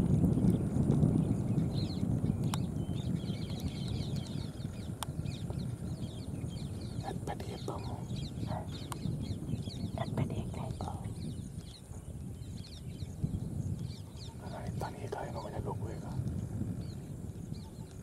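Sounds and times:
steady low rumble: 0.0s - 18.0s.

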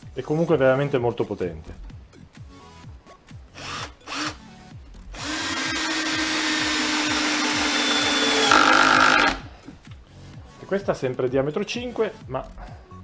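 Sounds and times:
cordless drill driving screw into wood: 3.6s - 4.4s, 5.2s - 9.4s.

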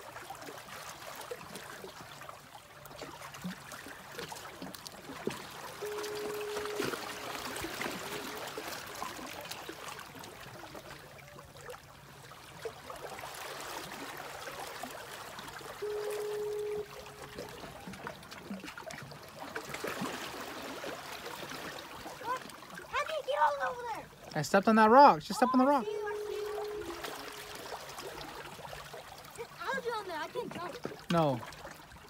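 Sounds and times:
water lapping among rocks: 0.0s - 32.0s
short steady tone: 5.8s - 8.3s, 15.8s - 17.6s, 25.7s - 27.7s.

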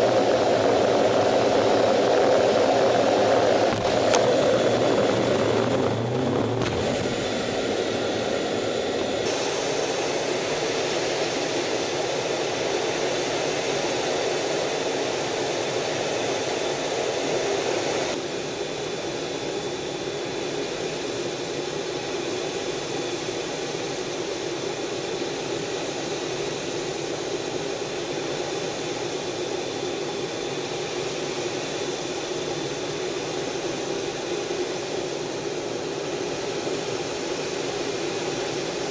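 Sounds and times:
thin high whine: 0.0s - 19.6s
jet engine and airflow rush: 0.0s - 38.9s.

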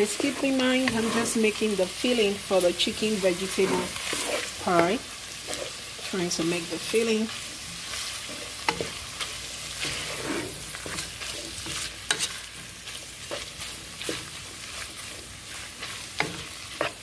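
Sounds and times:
meat and onions sizzling in a pan: 0.0s - 17.0s
spatula scraping through food: 0.0s - 17.0s
spatula tapping a pan: 16.1s - 17.0s.

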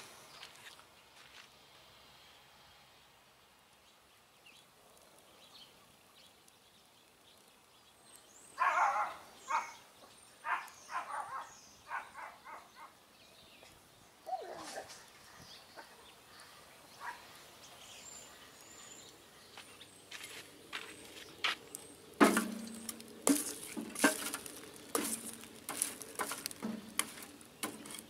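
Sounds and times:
wood crackling in a fire: 3.8s - 11.0s, 16.3s - 28.0s.

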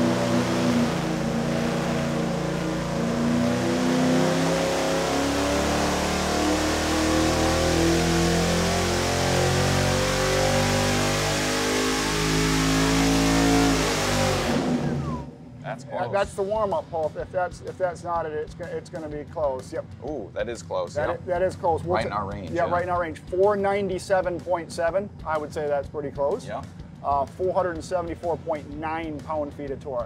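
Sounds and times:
engine revving at full throttle: 0.0s - 15.7s.

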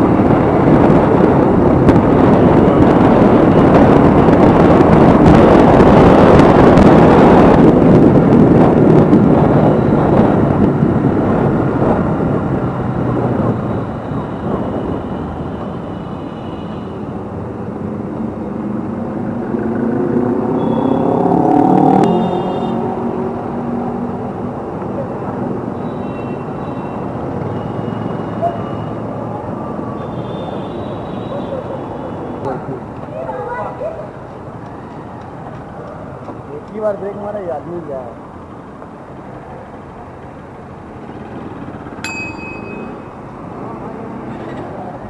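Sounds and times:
wind and road noise: 0.0s - 45.0s
motorcycle engine: 18.7s - 23.9s.

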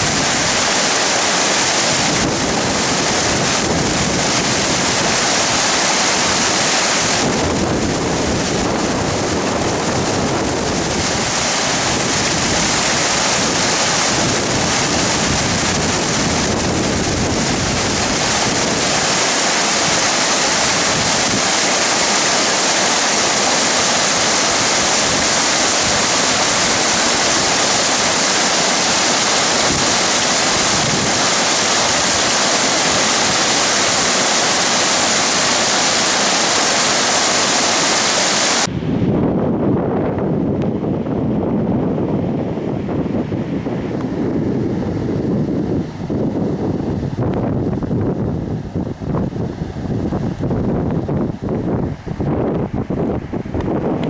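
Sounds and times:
stream rushing over boulders: 0.0s - 38.7s.

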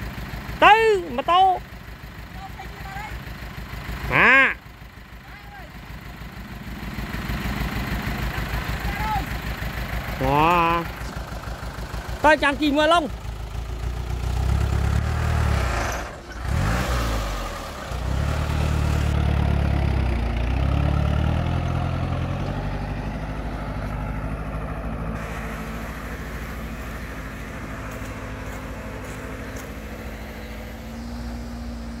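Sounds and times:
truck engine pulling away: 0.0s - 32.0s.

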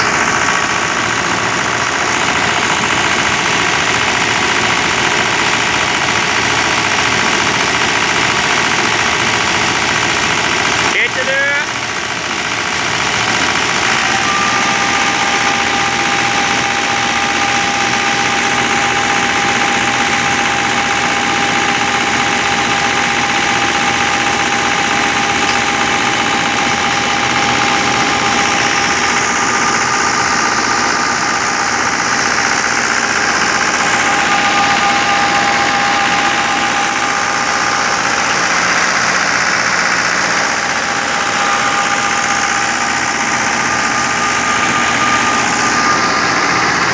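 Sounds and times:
thresher machinery clattering: 0.0s - 46.9s
tractor diesel engine running: 0.0s - 46.9s
steady high whine: 14.1s - 46.9s.

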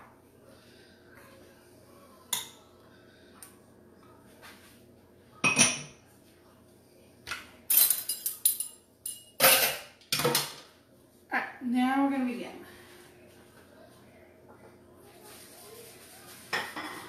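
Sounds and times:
cookware clattering: 5.4s - 6.0s, 7.3s - 10.7s, 16.5s - 17.0s.

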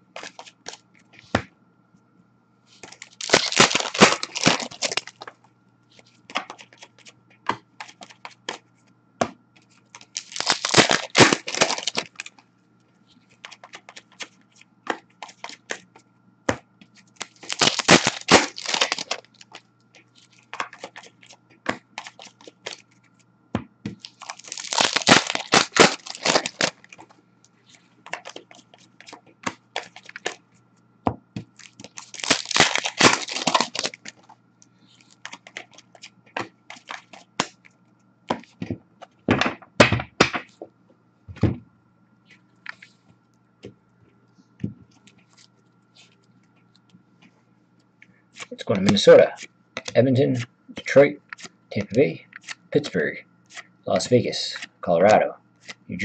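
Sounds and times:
card wrappers tearing and crinkling: 0.1s - 0.8s, 2.8s - 5.3s, 10.0s - 12.4s, 17.1s - 19.6s, 20.3s - 22.9s, 24.0s - 27.1s, 28.1s - 30.4s, 31.5s - 34.3s, 35.0s - 37.6s, 48.4s - 50.0s
cards clicking and tapping: 6.3s - 9.4s, 13.4s - 22.8s, 28.0s - 30.4s, 48.4s - 50.0s.

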